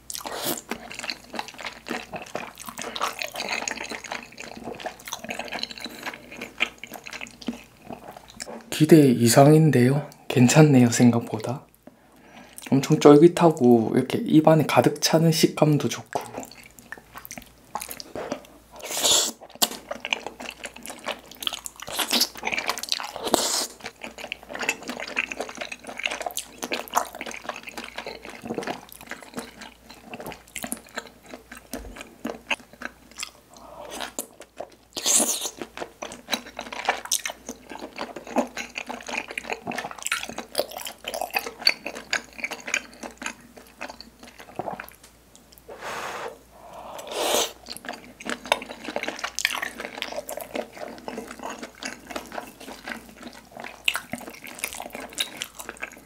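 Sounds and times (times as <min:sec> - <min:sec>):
wet sticky chewing: 0:16.1 - 0:45.7, 0:47.0 - 0:56.0.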